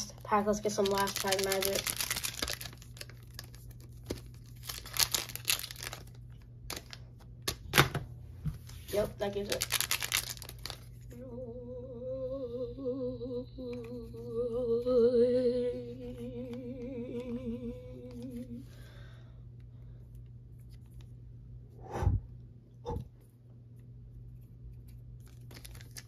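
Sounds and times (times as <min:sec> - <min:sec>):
person humming: 0:11.1 - 0:18.7.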